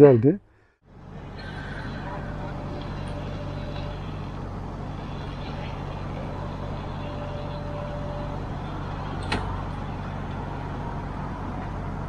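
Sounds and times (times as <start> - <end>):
road and tyre noise in car: 0.8 - 12.0.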